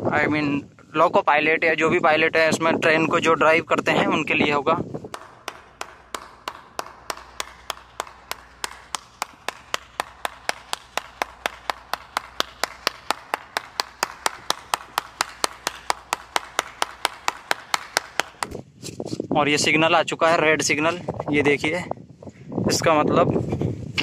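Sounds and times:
person clapping hands: 0:05.1 - 0:18.6.

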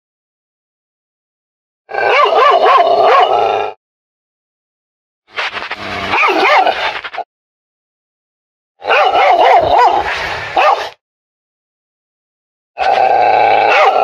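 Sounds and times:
recorded dog barking: 0:02.0 - 0:03.5, 0:06.1 - 0:06.9, 0:08.8 - 0:11.0, 0:13.6 - 0:14.0.

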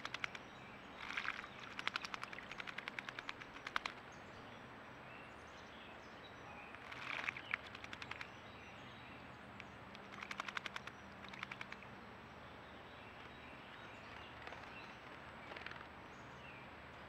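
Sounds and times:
bird splashing in water: 0:00.0 - 0:04.1, 0:06.8 - 0:08.4, 0:10.0 - 0:11.9.

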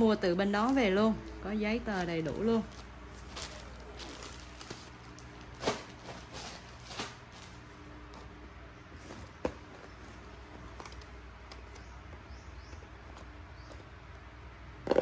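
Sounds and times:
low steady hum: 0:00.0 - 0:15.0
packaging rustling and knocking: 0:02.7 - 0:07.5.

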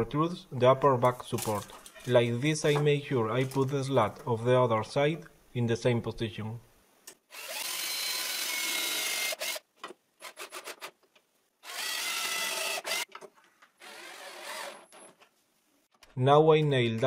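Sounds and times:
cordless drill whining: 0:07.3 - 0:09.6, 0:11.6 - 0:13.1, 0:13.8 - 0:15.0.

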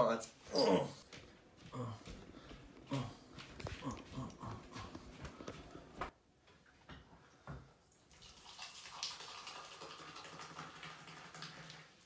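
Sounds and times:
fizzy drink pouring into glass: 0:08.0 - 0:12.0.

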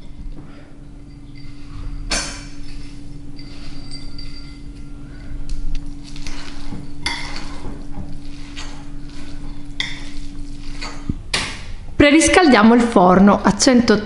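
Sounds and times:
fork clinking against glass: 0:01.0 - 0:07.7
fork scraping glass bowl: 0:01.1 - 0:11.1.

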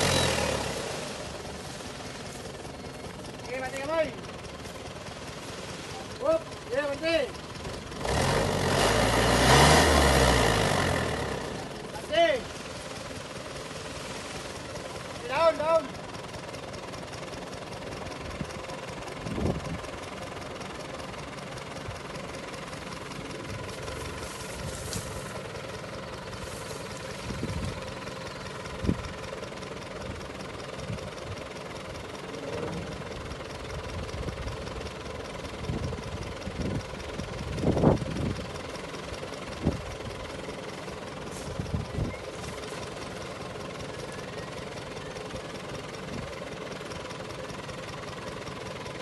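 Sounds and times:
truck engine idling: 0:00.0 - 0:49.0.

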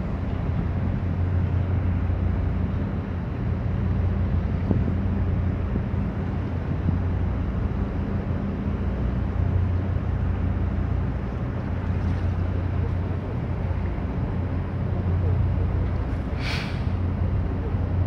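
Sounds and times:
ship engine drone: 0:00.0 - 0:18.0
wind on microphone: 0:04.5 - 0:05.1.

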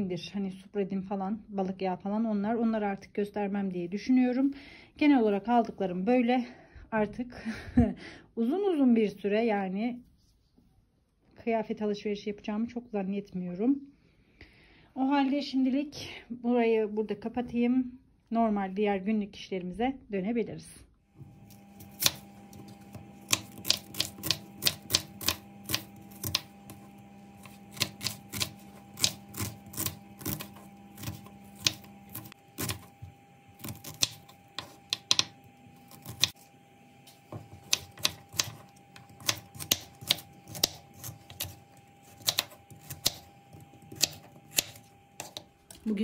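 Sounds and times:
knife chopping on wooden board: 0:21.8 - 0:36.4, 0:37.1 - 0:45.8.

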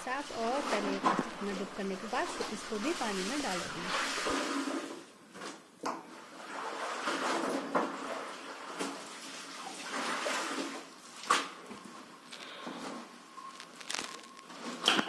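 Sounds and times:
soapy water splashing in tub: 0:00.0 - 0:05.1, 0:06.2 - 0:11.6.

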